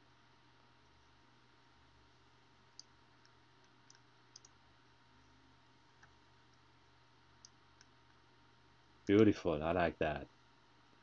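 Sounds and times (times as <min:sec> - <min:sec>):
faint low hum: 0:00.0 - 0:11.0
computer mouse clicking: 0:02.7 - 0:04.6, 0:07.4 - 0:08.2.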